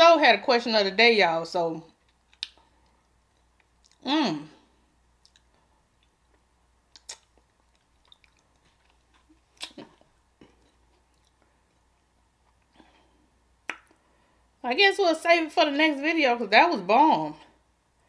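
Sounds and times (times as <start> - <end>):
lip smacks: 2.0 - 4.0, 5.2 - 12.8, 13.6 - 14.1
tongue clicks: 5.2 - 8.6, 9.6 - 11.4, 13.6 - 14.0.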